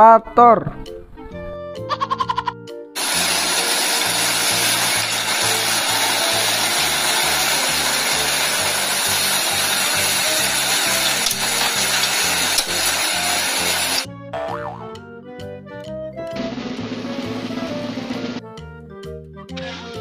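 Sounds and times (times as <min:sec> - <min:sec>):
background music with bass line: 0:00.8 - 0:20.0
excavator engine running: 0:03.0 - 0:13.0
plucked melody: 0:14.4 - 0:20.0.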